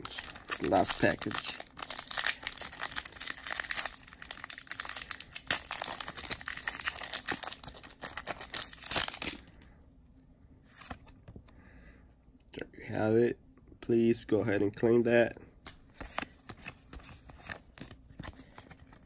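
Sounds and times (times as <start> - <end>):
foil pack tearing and crinkling: 0.0 - 9.4.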